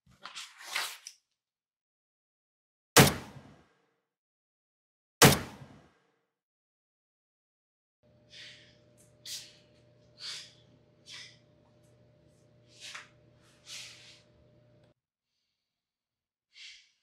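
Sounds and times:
man gasping breaths: 8.2 - 11.4.

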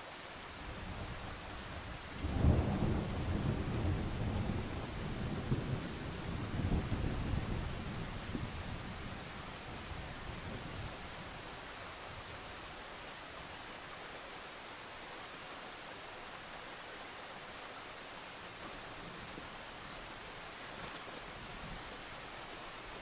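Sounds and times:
heavy rain hissing: 0.0 - 23.0
low thunder rumble: 0.8 - 11.0.

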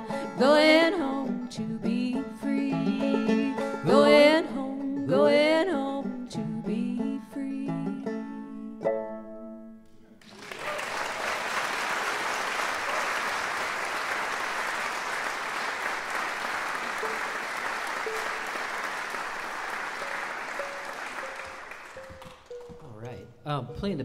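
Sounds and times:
banjo string plucked notes: 0.0 - 10.2, 19.9 - 24.0
audience applauding: 10.2 - 23.2.

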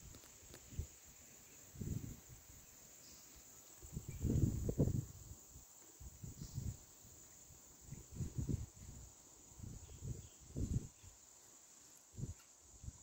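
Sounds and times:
insects droning: 0.0 - 13.0
wind buffeting microphone: 1.7 - 2.5, 3.8 - 5.4, 6.0 - 6.9, 7.8 - 11.0.

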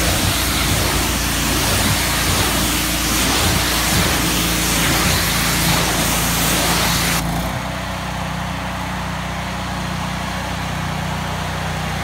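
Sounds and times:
water spray hissing: 0.0 - 7.2
pressure washer engine running: 0.0 - 12.0.

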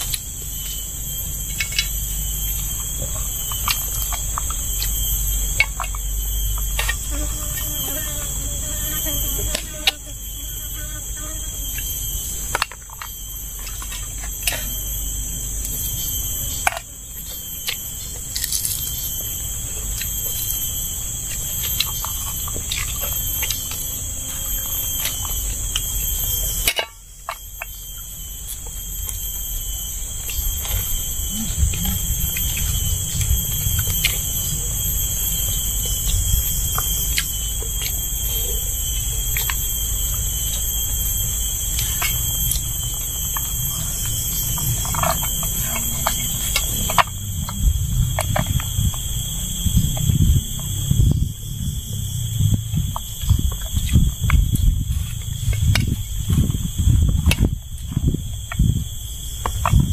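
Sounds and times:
insect chorus buzzing: 0.0 - 59.9.

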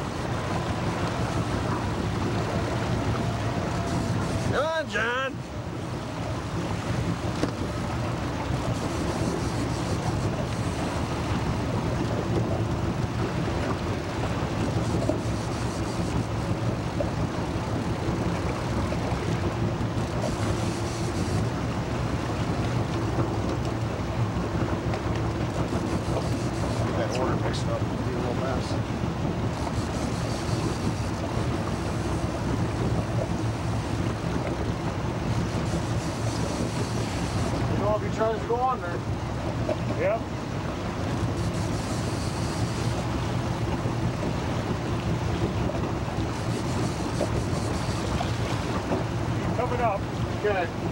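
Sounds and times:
wind on microphone: 0.0 - 4.6
boat engine running: 0.0 - 50.9
waves washing: 0.0 - 50.9.

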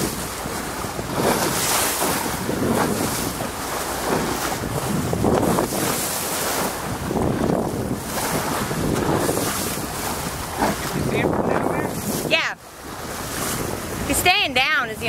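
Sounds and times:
choppy sea waves: 0.0 - 15.0
wind buffeting microphone: 0.0 - 15.0.

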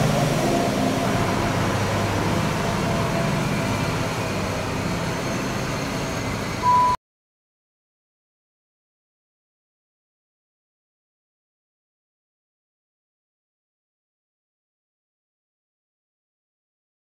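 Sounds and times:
diesel engine running: 0.0 - 6.9
short high beep: 6.6 - 7.0.

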